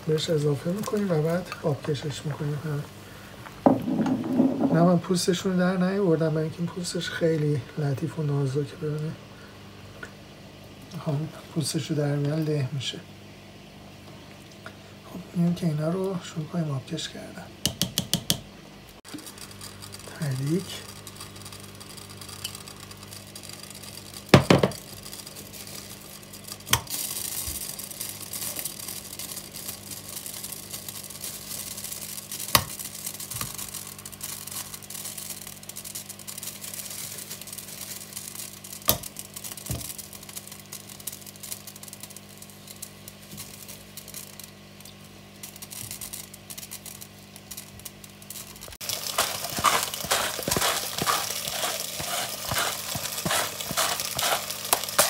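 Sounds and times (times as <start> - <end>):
oil sizzling in a pot: 0.0 - 7.0, 19.0 - 55.0
steady low hum: 18.6 - 55.0
seasoning shaker rattling: 19.1 - 55.0.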